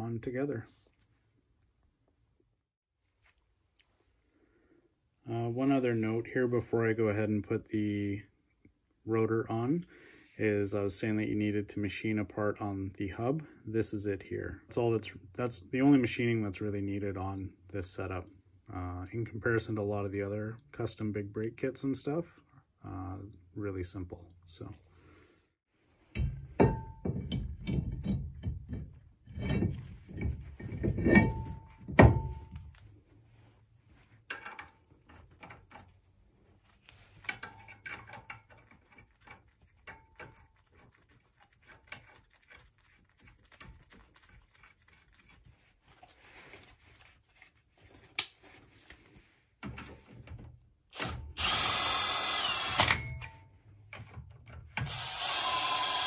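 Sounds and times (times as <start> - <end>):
heavy metal clunks and knocks: 26.0 - 32.6
impact wrench running: 50.9 - 53.2, 54.8 - 56.0.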